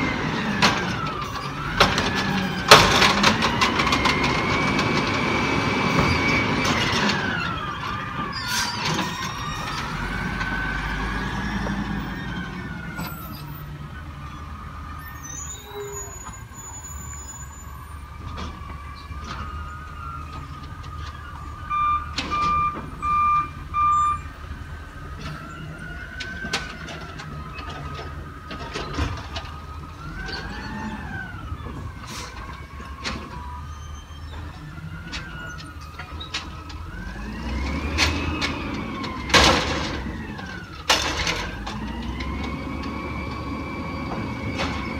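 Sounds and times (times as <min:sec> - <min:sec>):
garbage truck hydraulics whine: 0:00.0 - 0:44.9
short beeps: 0:21.7 - 0:24.2.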